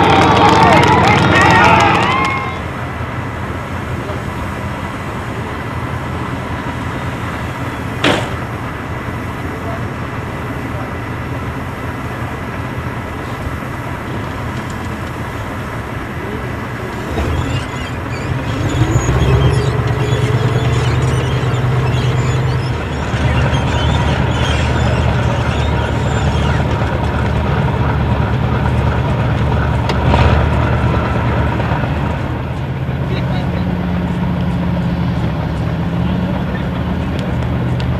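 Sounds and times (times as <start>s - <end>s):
rising whine: 0.0s - 37.9s
tracked vehicle engine running: 0.0s - 37.9s
sharp knock: 8.0s - 8.4s.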